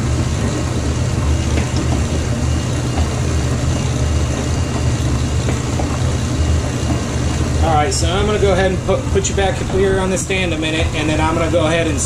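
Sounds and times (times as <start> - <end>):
stand mixer humming: 0.0 - 12.0.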